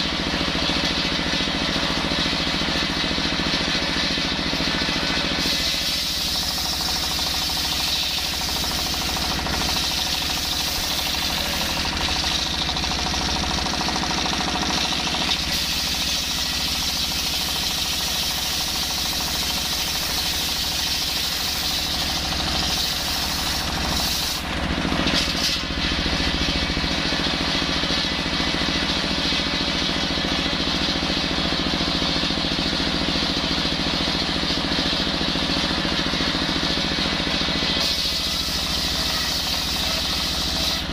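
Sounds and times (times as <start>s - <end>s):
diesel engine running: 0.0s - 40.9s
circular saw ripping wood: 5.2s - 12.6s, 15.2s - 26.1s, 37.8s - 40.9s.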